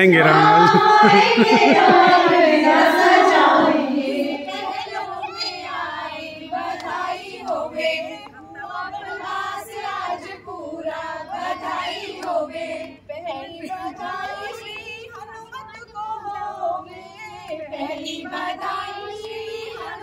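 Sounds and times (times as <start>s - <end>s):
women singing devotional song: 0.0s - 20.0s.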